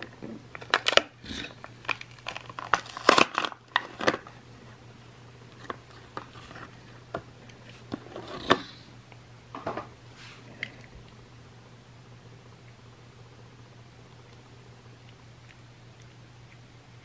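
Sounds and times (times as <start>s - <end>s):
plastic packaging crackling: 0.0s - 4.4s
low electrical hum: 0.0s - 17.0s.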